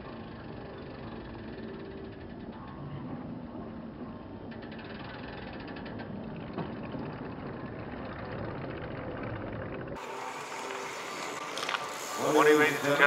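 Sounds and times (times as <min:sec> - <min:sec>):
steady low rumbling: 0:05.9 - 0:10.0.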